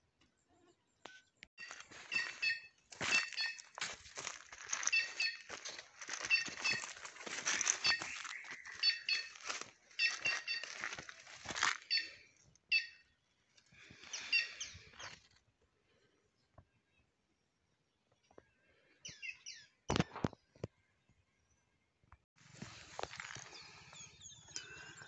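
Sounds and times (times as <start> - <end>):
short high chirps: 1.6 - 3.7, 4.8 - 5.5, 6.2 - 7.0, 7.6 - 9.4, 10.0 - 10.7
footsteps crunching dry leaves: 1.6 - 12.2, 22.4 - 24.0.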